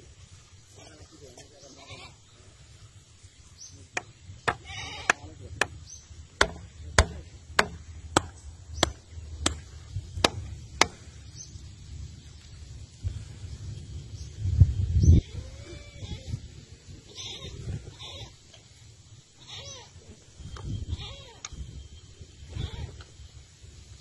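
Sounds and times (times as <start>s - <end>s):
hammer striking wooden stake: 4.0s - 5.8s, 6.4s - 11.0s.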